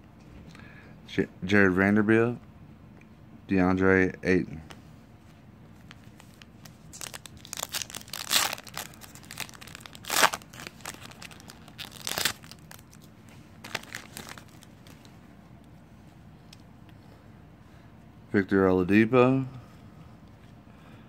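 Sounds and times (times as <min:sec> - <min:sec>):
plastic wrapper crinkling and tearing: 0:05.8 - 0:15.2.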